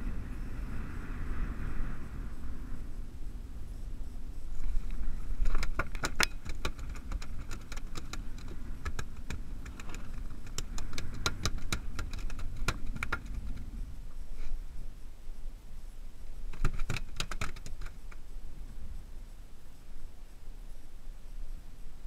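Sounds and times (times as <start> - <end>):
wind rumbling on microphone: 0.0 - 22.0
fishing gear clicks and knocks: 4.6 - 13.7, 16.5 - 18.2.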